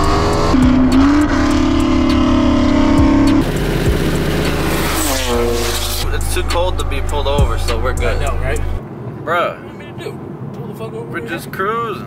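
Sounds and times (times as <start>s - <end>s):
car engine revving: 0.0s - 8.8s.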